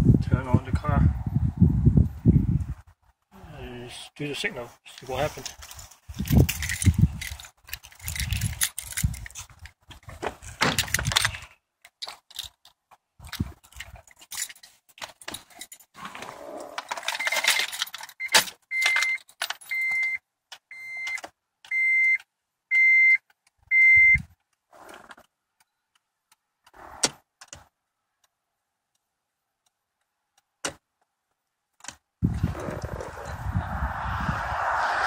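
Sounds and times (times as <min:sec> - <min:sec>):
car keys jangling: 0:05.5 - 0:12.7, 0:13.3 - 0:16.0, 0:16.6 - 0:20.0
dashboard warning chime beeping: 0:18.2 - 0:24.2.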